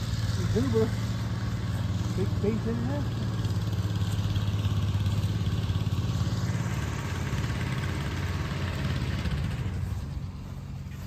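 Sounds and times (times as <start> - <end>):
tractor engine idling: 0.0 - 11.0.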